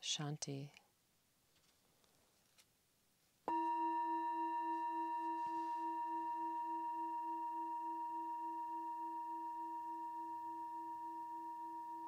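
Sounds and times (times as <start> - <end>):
singing bowl ringing: 3.5 - 12.0.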